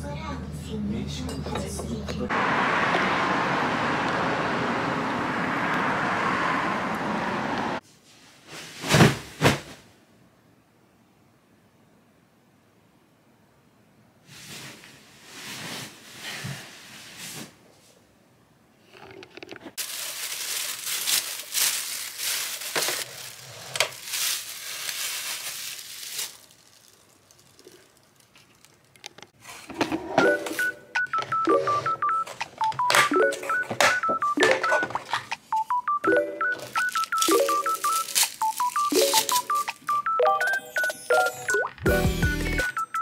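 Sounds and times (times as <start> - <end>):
plastic rustling and crinkling: 18.9 - 29.4, 36.6 - 40.0
beeping electronic tune: 30.2 - 35.0, 35.6 - 43.0.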